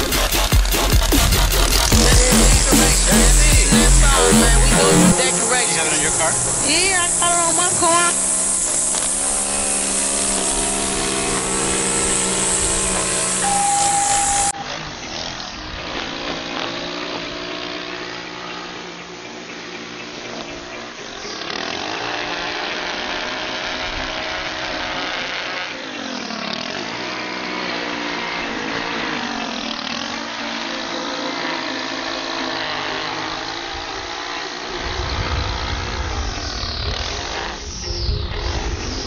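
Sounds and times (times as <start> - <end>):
string trimmer running: 0.0 - 37.8
low rumble: 34.7 - 39.0.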